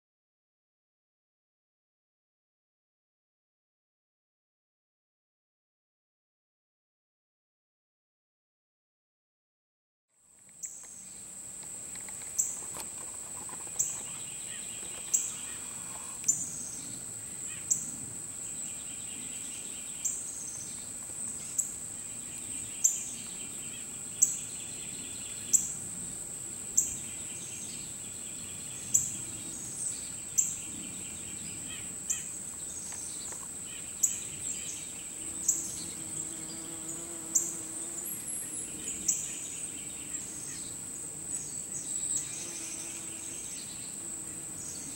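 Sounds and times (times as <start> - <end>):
insect drone: 10.2 - 44.9
insect chirping trills: 10.3 - 44.9.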